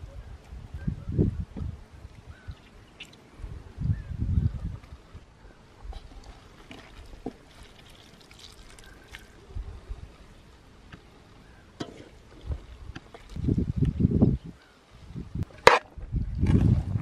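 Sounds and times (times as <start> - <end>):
water pouring and trickling: 2.1 - 3.3, 6.0 - 9.5, 12.1 - 14.1.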